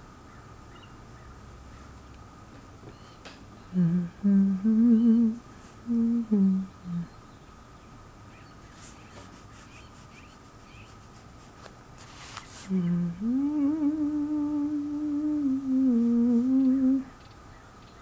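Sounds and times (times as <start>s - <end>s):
person humming: 3.7s - 7.2s, 12.6s - 17.1s.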